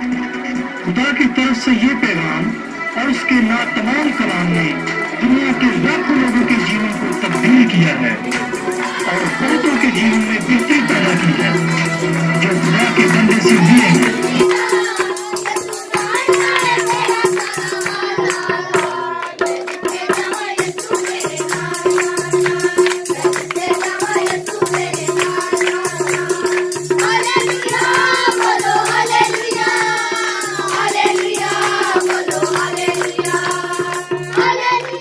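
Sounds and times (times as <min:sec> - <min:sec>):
held drone note: 0:00.0 - 0:15.3
person singing: 0:00.0 - 0:16.7
fast rattling percussion beat: 0:02.4 - 0:35.0.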